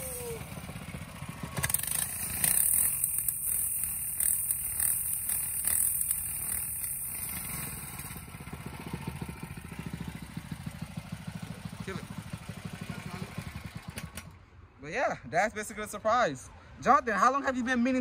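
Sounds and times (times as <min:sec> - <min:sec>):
tire scrubbing on concrete: 0:00.0 - 0:11.5
small engine revving and idling: 0:00.0 - 0:14.3.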